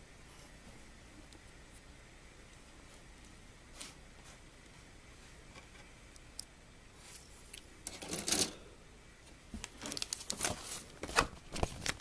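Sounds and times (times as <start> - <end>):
packaging rustling: 9.6 - 12.0.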